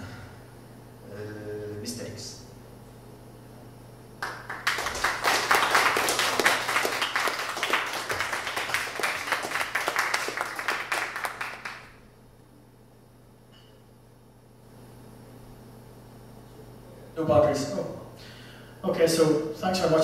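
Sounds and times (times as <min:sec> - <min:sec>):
audience applauding: 0:04.2 - 0:12.0.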